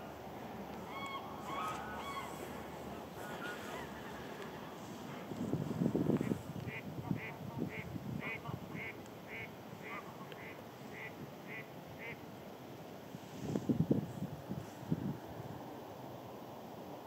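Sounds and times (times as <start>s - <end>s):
bird short high calls: 0.8s - 4.4s
wind rumble on microphone: 2.0s - 8.9s, 13.2s - 15.6s.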